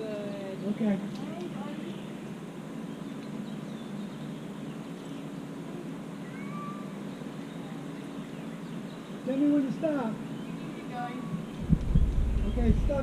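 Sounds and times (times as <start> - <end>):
steady low hum: 0.0 - 13.0
cat meowing faintly: 6.2 - 7.0.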